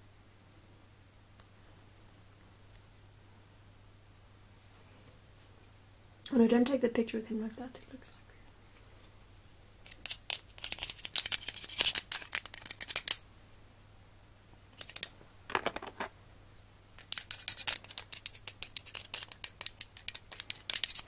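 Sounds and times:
kitten claws scratching plastic: 9.8s - 13.2s, 14.8s - 16.0s, 17.0s - 21.0s.

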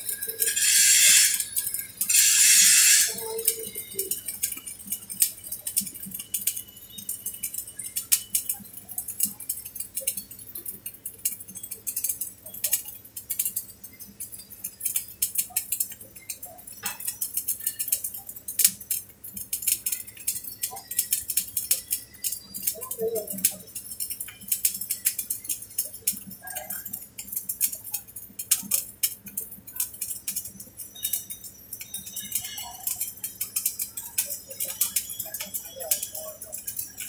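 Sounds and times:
arc welding crackling: 0.0s - 37.0s.

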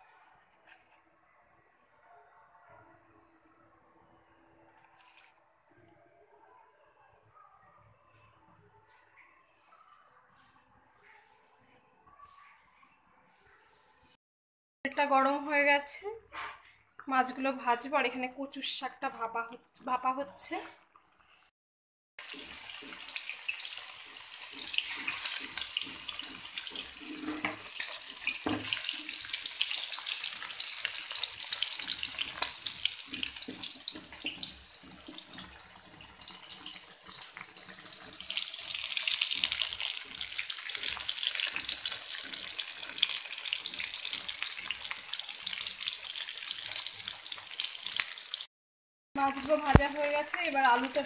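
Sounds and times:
fish frying in oil: 22.2s - 48.5s, 49.2s - 51.0s.

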